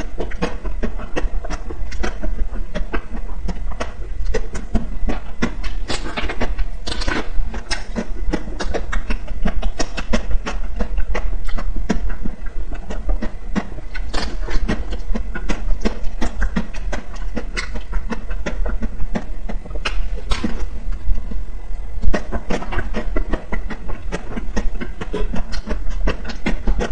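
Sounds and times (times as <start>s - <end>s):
wet mouth eating sounds: 0.0s - 21.2s, 22.0s - 26.9s
steady low hum: 0.0s - 26.9s.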